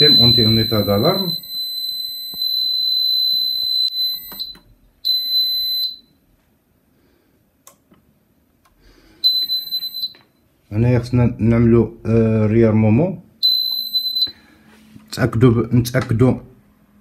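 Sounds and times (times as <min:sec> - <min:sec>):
fire alarm buzzer tone: 0:00.0 - 0:06.2, 0:09.2 - 0:10.3, 0:13.4 - 0:14.5.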